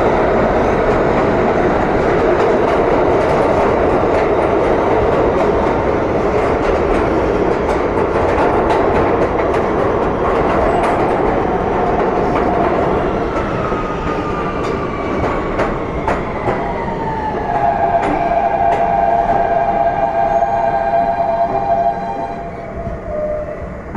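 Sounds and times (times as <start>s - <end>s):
subway train rumble: 0.0s - 23.9s
train propulsion whine: 10.6s - 23.9s.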